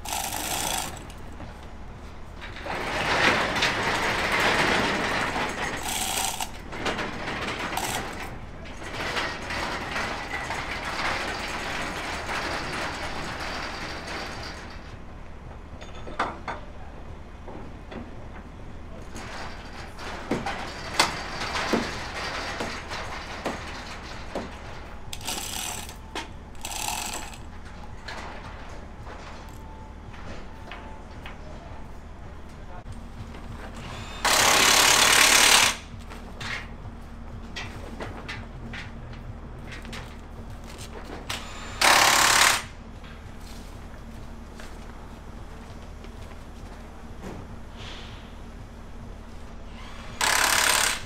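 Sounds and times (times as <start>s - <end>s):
chain hoist ratchet clattering: 0.0s - 1.2s, 2.9s - 14.8s, 25.1s - 27.5s.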